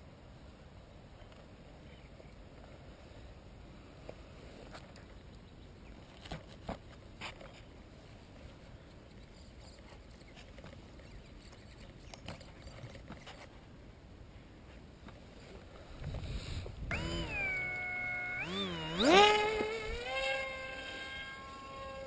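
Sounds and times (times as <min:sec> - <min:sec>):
electric motor and propeller whining: 0:16.7 - 0:22.0.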